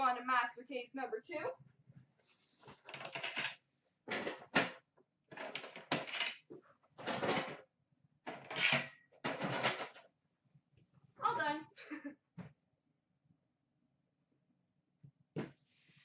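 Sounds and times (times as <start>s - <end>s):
metal tins clattering and scraping: 5.3s - 6.4s, 8.3s - 10.0s.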